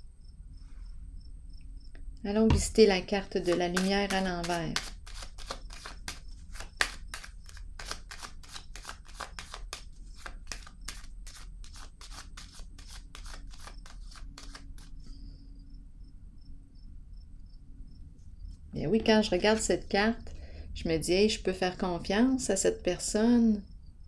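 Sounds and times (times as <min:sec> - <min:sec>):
cricket chirping: 0:00.0 - 0:03.0, 0:14.9 - 0:18.9, 0:23.6 - 0:24.0
cards being shuffled: 0:02.5 - 0:15.1.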